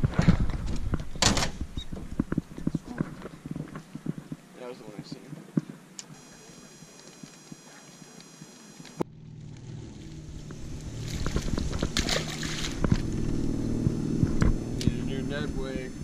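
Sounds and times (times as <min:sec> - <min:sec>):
low hum: 0:06.0 - 0:16.0
fish splashing at water surface: 0:10.4 - 0:13.4.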